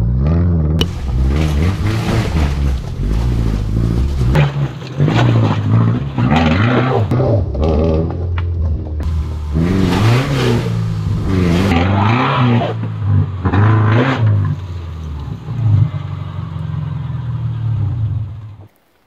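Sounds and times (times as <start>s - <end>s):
car engine revving: 0.0s - 18.7s
rough scrabbling noise: 0.8s - 8.3s, 9.0s - 15.3s.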